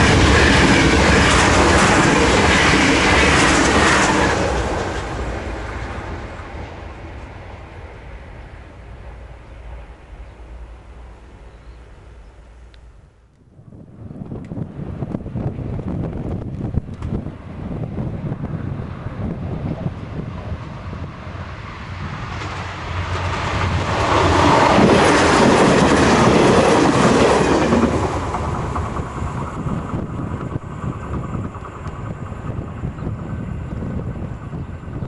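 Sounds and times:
wheels clickety-clack on rails: 0.0s - 7.4s, 22.2s - 35.0s
train passing: 0.0s - 35.0s
wind buffeting microphone: 13.4s - 35.0s.

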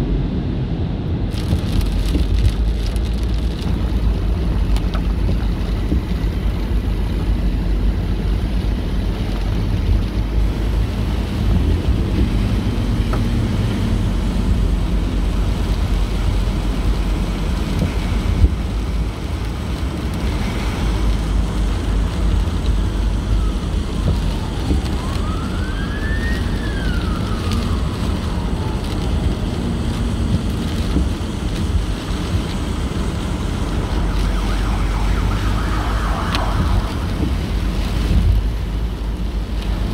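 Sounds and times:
tyres on wet road: 0.0s - 39.9s
distant emergency siren wailing: 22.9s - 29.8s, 33.3s - 38.0s.

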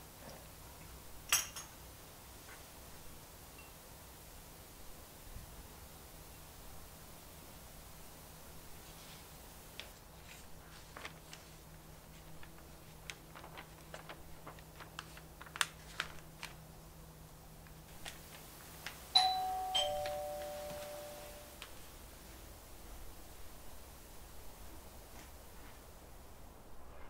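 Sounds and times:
two-tone doorbell chime: 19.2s - 21.6s.

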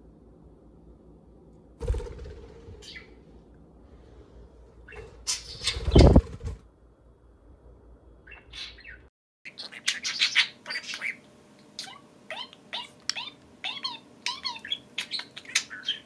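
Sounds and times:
bird wings flapping: 1.8s - 3.0s, 4.9s - 6.7s.

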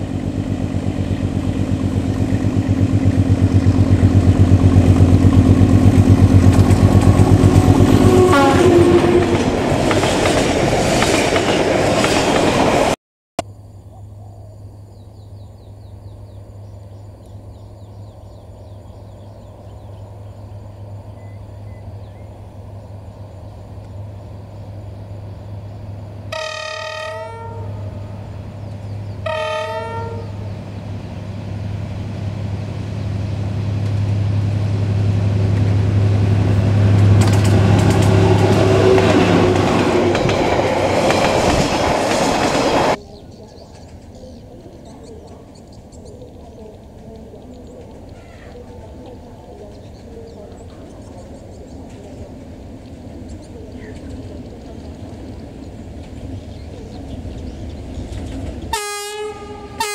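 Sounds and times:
locomotive engine hum: 0.0s - 13.0s, 14.0s - 59.9s
train wheel clatter: 1.2s - 8.2s, 8.8s - 13.0s, 36.4s - 44.4s
locomotive horn: 6.9s - 9.8s, 26.3s - 28.2s, 29.2s - 30.5s, 36.7s - 40.3s, 58.7s - 59.9s.

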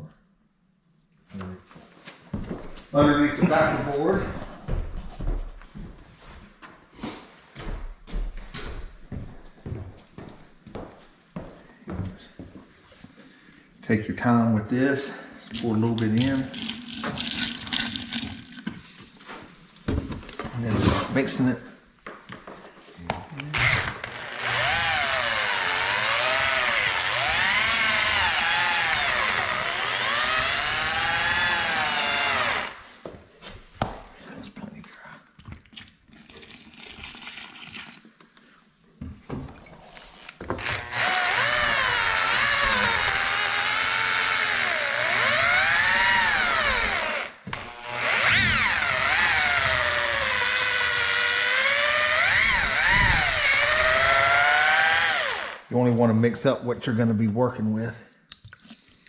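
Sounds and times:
electric drill mixing mortar: 23.4s - 33.0s, 40.4s - 55.7s
drill click: 23.6s - 32.8s, 40.6s - 55.6s.

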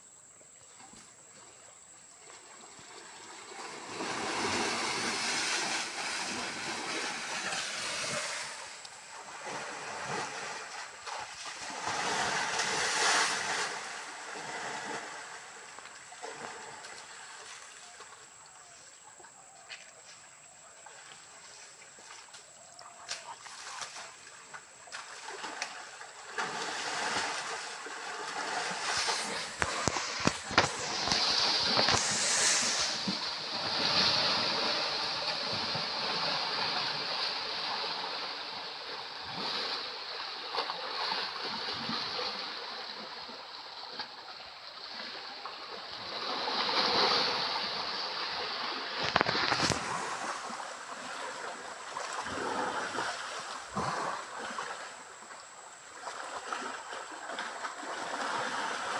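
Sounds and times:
elephants splashing in water: 2.5s - 18.4s, 20.8s - 58.9s
heavy splashes: 24.9s - 38.6s
steady high hiss: 28.7s - 35.7s.

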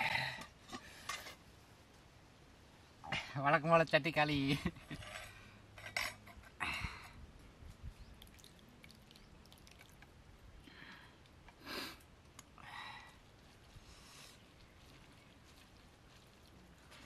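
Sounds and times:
curry pouring and scraping: 13.1s - 17.0s.

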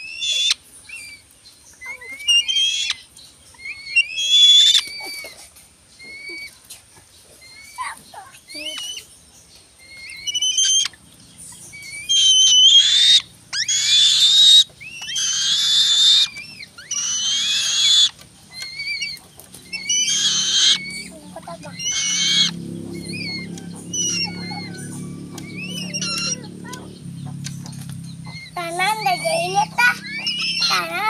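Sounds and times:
bird whistled chirps: 0.0s - 5.3s, 9.8s - 26.9s, 28.2s - 30.8s
bird harsh wheezy screams: 19.8s - 24.6s.

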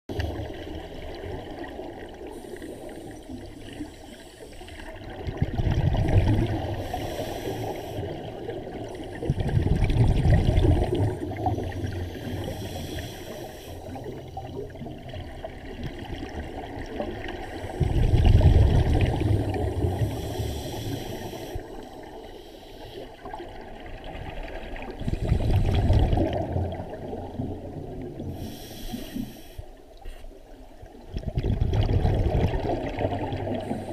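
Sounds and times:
exhaled bubbles rushing: 4.9s - 7.0s, 8.0s - 12.3s, 13.9s - 20.3s, 23.2s - 28.3s, 31.0s - 33.9s
regulator inhalation hiss: 6.8s - 8.2s, 11.6s - 14.0s, 20.0s - 23.1s, 28.3s - 30.2s.

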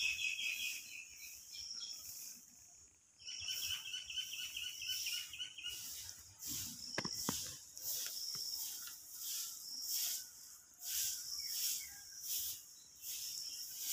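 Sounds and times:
insects calling: 0.0s - 13.9s.

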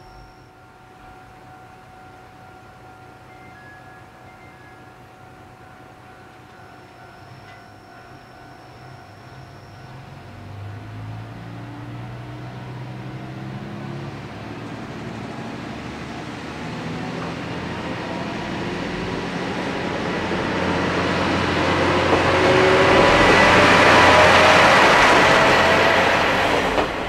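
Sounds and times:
diesel railcar engine accelerating: 6.0s - 27.0s
wheel-on-rail noise: 16.7s - 27.0s.

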